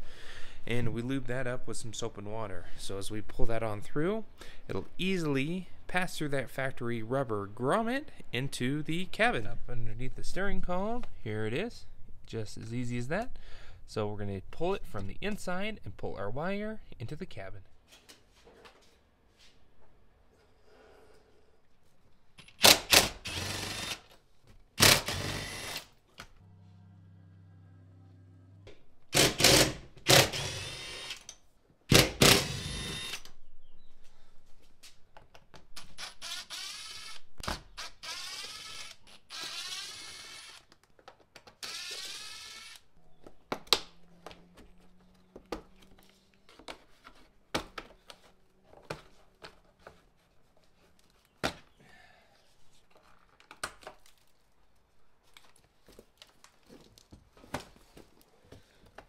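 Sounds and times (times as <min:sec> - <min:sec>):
cordless driver whining: 0:36.0 - 0:40.7, 0:41.6 - 0:42.9.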